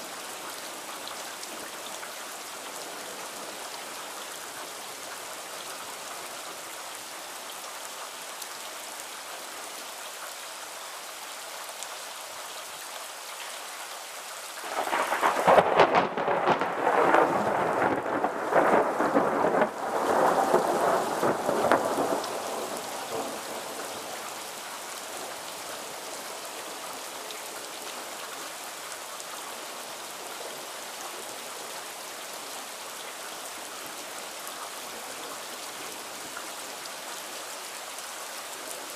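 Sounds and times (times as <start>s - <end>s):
steady rain falling: 0.0s - 38.9s
thunder crackling and rumbling: 14.6s - 23.4s.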